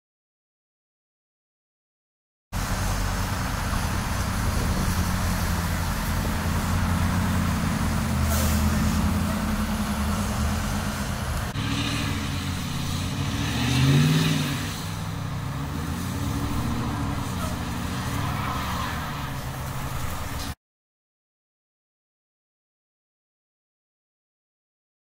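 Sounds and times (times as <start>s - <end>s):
pickup truck engine revving: 2.6s - 20.5s
vehicle engines running: 2.6s - 20.6s.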